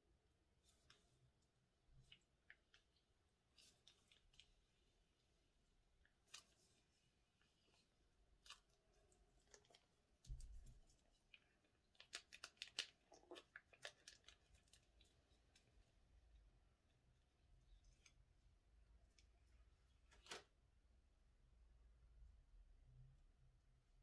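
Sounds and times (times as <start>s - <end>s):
plastic bag crinkling: 8.4s - 15.6s.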